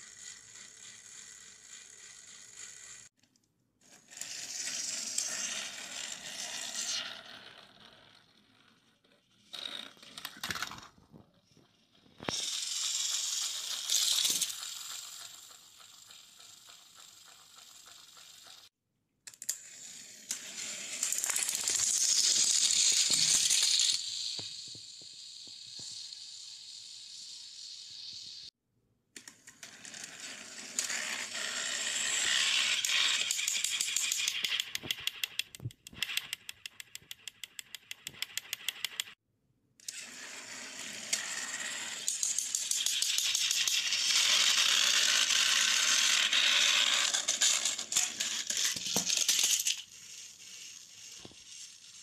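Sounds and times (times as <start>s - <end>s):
toy train motors whirring: 0.0s - 3.1s, 3.8s - 10.9s, 12.2s - 18.7s, 19.3s - 28.5s, 29.2s - 39.2s, 39.8s - 52.0s
fast clicks: 33.4s - 39.2s.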